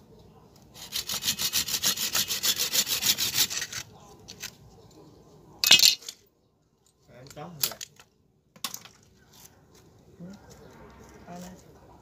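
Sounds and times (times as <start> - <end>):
hand saw cutting branch: 0.8 - 3.8.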